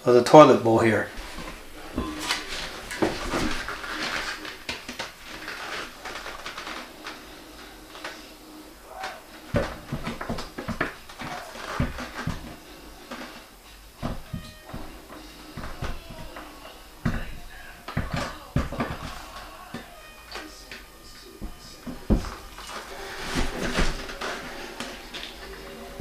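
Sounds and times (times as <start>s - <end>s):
toilet bowl knocks and bumps: 1.2s - 3.8s, 9.5s - 12.6s, 14.0s - 19.9s, 21.4s - 22.4s
sharp thumps: 8.9s - 20.0s.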